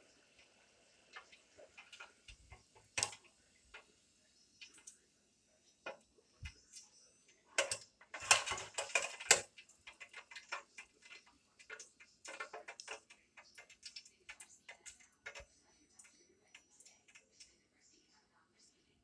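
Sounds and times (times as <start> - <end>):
fries popping in hot oil: 0.0 - 5.0, 5.6 - 17.6
fry basket metal clatter: 7.6 - 15.4.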